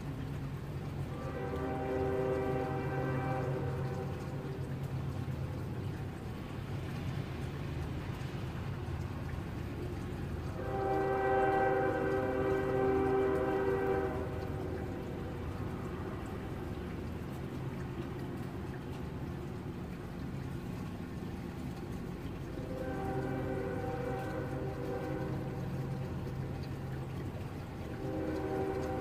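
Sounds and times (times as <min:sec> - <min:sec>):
steady rainfall: 0:00.0 - 0:29.0
train horn blast: 0:01.0 - 0:05.0, 0:10.4 - 0:16.3, 0:22.4 - 0:29.0.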